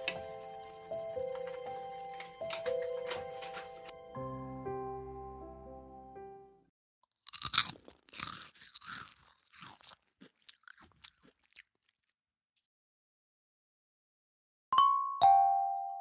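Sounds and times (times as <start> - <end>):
irregular crunching: 7.0 - 12.7.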